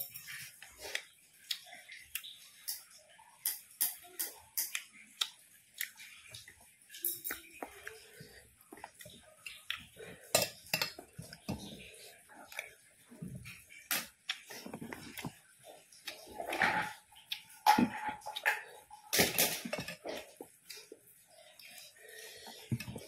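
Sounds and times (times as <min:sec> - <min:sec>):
chewing and lip-smacking: 0:00.3 - 0:03.4, 0:04.3 - 0:10.3, 0:10.9 - 0:17.6.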